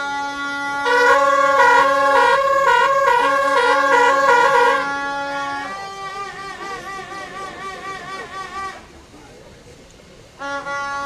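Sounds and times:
two-tone horn: 0.0s - 8.8s, 10.4s - 11.0s
steady horn note: 0.8s - 6.8s.

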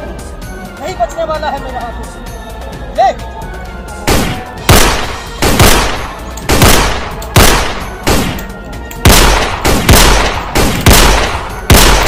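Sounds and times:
echoing gunshots: 4.1s - 12.0s.

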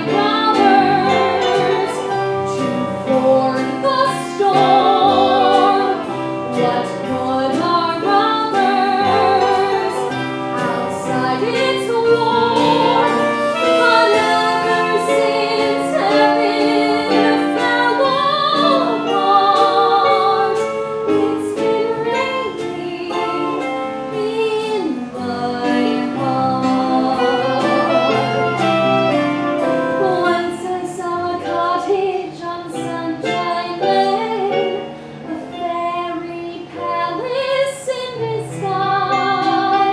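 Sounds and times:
band playing show tune: 0.0s - 31.6s
melody with vibrato: 0.0s - 32.1s
steady percussion beat: 8.6s - 30.6s.

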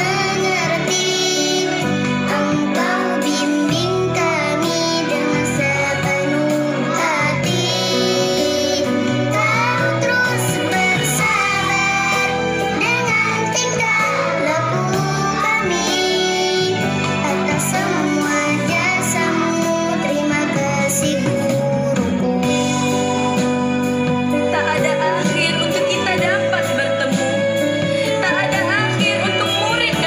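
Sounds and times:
children singing: 0.0s - 23.0s
instrumental backing music: 0.0s - 30.0s.

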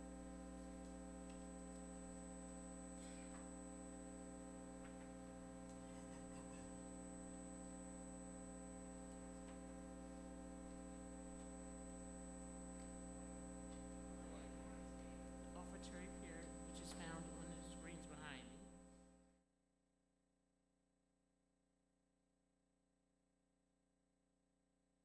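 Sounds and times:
steady hum: 0.0s - 19.3s.

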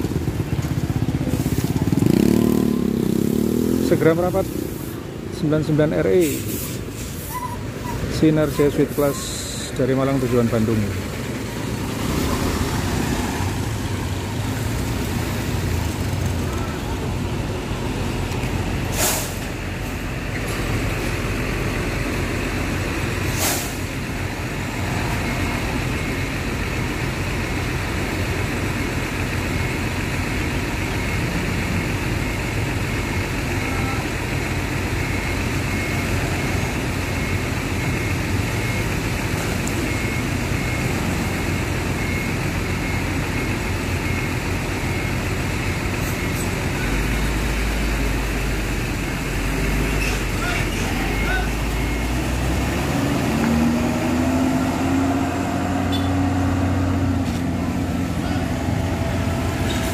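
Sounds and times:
bus diesel engine running: 0.0s - 59.9s
air brake hisses: 18.9s - 19.5s, 23.3s - 23.8s
faint high beep: 33.4s - 34.3s, 35.0s - 45.2s, 49.8s - 56.3s.

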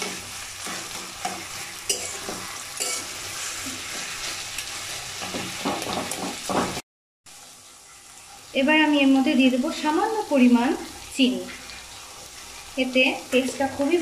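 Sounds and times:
metal spatula scraping pan: 0.0s - 6.8s
frying sizzle: 0.0s - 14.0s.

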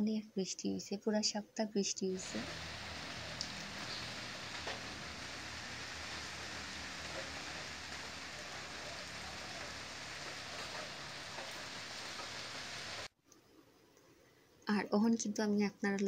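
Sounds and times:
rain on wet pavement: 2.2s - 13.1s.

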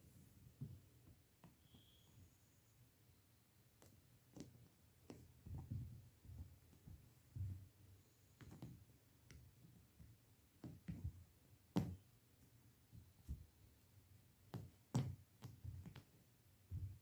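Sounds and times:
soft thumps and scuffs: 3.8s - 13.6s, 14.5s - 17.0s.

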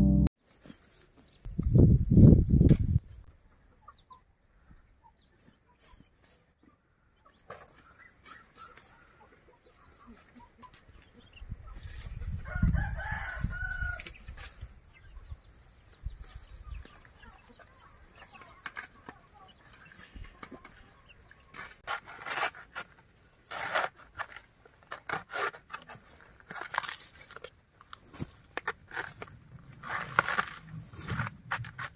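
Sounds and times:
low rumble: 0.0s - 0.3s
chickens clucking: 5.1s - 12.7s, 14.0s - 21.8s
rooster crowing: 12.4s - 14.0s.

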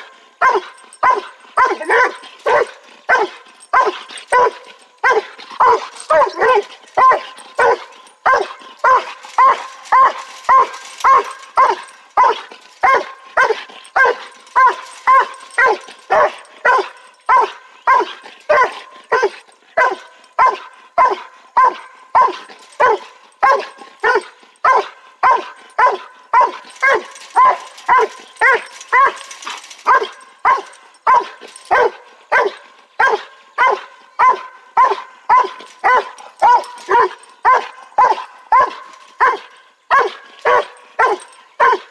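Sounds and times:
dog barking: 0.4s - 41.9s.

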